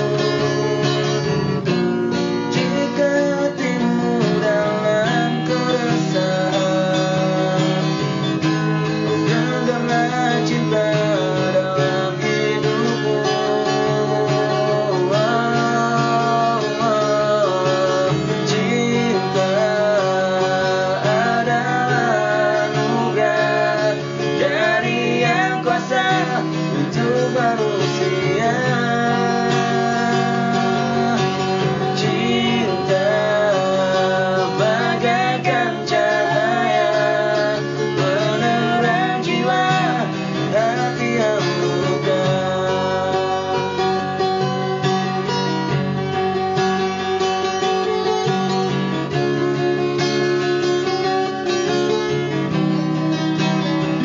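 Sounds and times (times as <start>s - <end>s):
acoustic guitar strumming: 0.0s - 54.0s
person singing: 1.6s - 45.4s.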